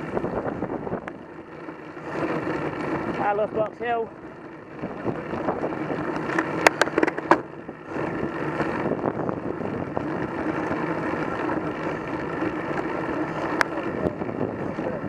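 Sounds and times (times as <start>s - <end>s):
wind buffeting microphone: 0.0s - 1.2s, 4.6s - 15.0s
road and bike rattle: 0.0s - 15.0s.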